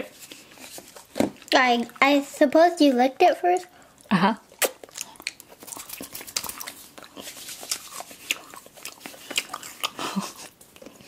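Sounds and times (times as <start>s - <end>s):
candy being chewed and crunched: 3.6s - 11.0s.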